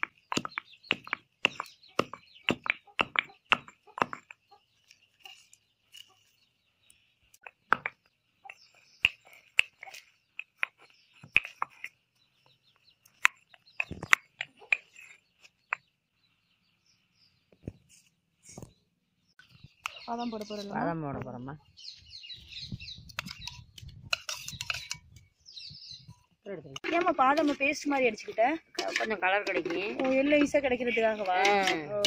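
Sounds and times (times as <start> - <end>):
stone pounding in stone mortar: 0.0 - 4.4, 7.4 - 11.9.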